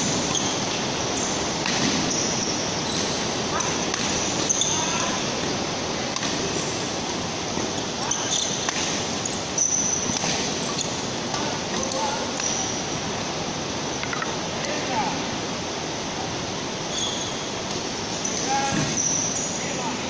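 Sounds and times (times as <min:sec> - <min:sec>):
court shoes squeaking: 0:00.0 - 0:06.9, 0:07.5 - 0:12.9, 0:16.8 - 0:19.8.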